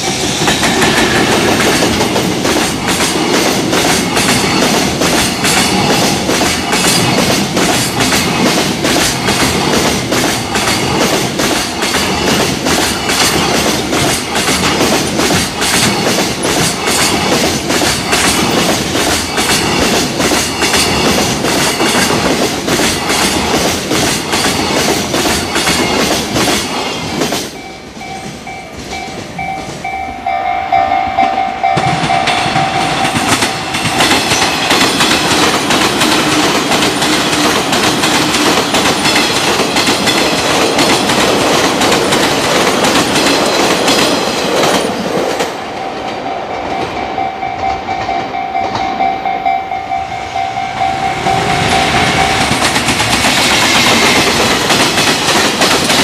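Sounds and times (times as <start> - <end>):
freight train wheels clattering: 0.0 - 56.0
level crossing warning bell: 27.5 - 35.1, 45.7 - 53.0.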